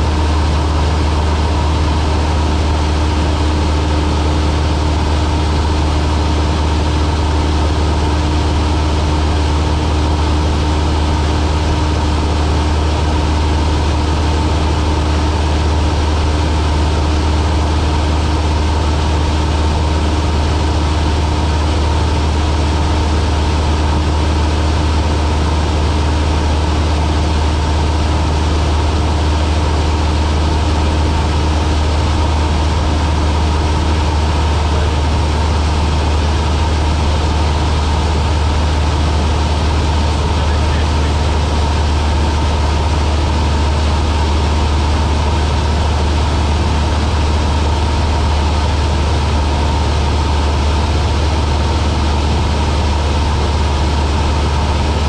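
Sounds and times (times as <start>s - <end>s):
light aircraft engine droning: 0.0s - 55.0s.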